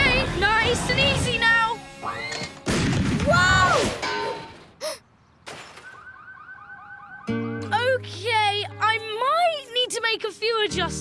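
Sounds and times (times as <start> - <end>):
falling whistle: 5.8 - 7.4.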